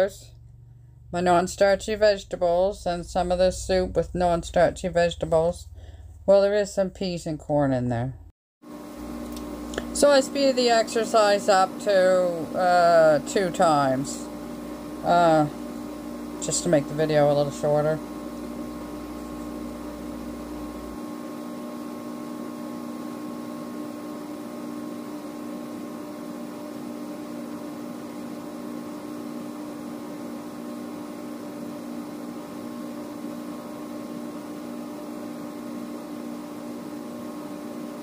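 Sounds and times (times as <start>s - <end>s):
microwave oven humming: 0.0s - 38.0s
low rumble: 2.5s - 6.5s.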